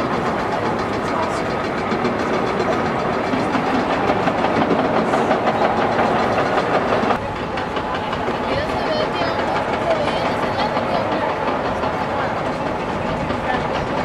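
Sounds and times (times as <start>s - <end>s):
diesel engine under load: 0.0s - 14.0s
steel tracks clattering: 0.0s - 14.0s.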